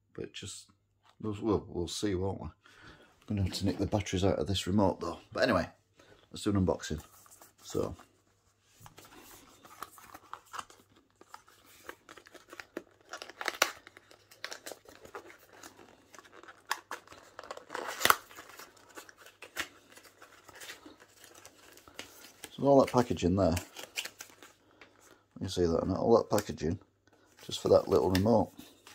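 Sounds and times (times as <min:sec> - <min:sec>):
cardboard box rustling and tearing: 0:09.5 - 0:22.5
cardboard ripping: 0:09.8 - 0:22.5.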